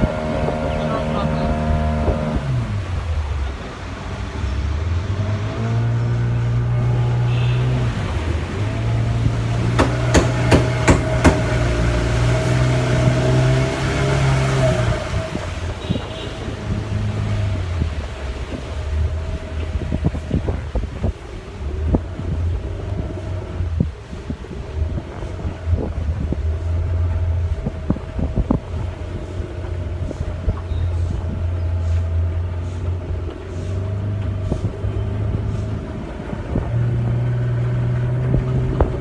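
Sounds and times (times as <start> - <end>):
wind buffeting microphone: 0.0 - 7.2, 7.8 - 39.0
motorboat engine running: 0.0 - 39.0
sharp knocks: 9.7 - 11.7.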